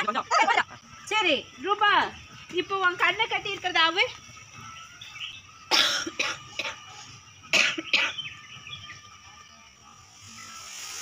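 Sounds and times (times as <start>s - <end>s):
person coughing: 5.7s - 6.8s.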